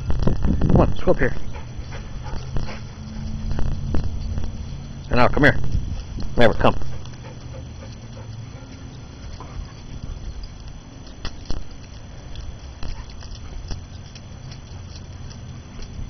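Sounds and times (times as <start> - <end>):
steady low rumble: 0.0 - 16.0
dog claws clicking on concrete: 9.2 - 16.0.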